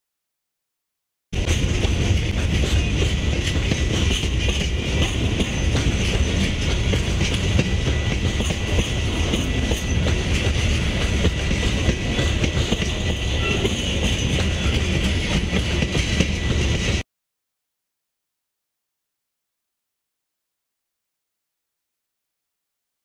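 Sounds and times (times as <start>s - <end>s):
freight train wheels rumbling on rails: 1.4s - 17.0s.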